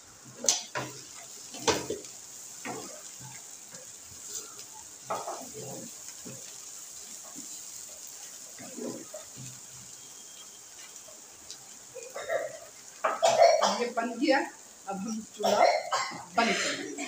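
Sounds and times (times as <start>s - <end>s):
steady high hiss: 0.0s - 17.0s
spatula scraping frying pan: 0.4s - 11.3s.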